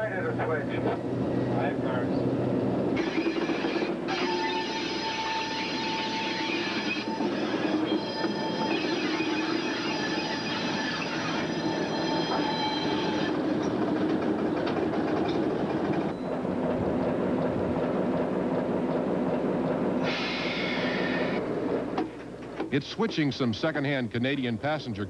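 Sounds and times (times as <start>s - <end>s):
diesel locomotive droning: 0.0s - 23.7s
train cars rumbling: 0.0s - 23.8s
railroad wheels squealing: 3.0s - 16.4s, 20.0s - 21.4s.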